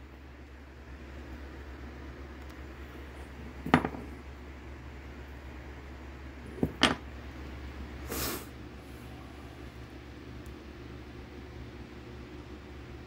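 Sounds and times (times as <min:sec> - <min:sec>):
metal parts knocking on wood: 0:03.6 - 0:04.1, 0:06.6 - 0:07.0
hissing rustle: 0:08.0 - 0:09.0.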